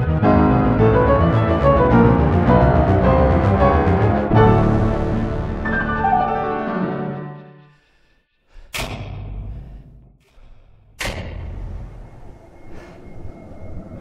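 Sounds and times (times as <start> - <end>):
booming cinematic impacts: 0.0 - 6.9
film score music: 0.0 - 14.0.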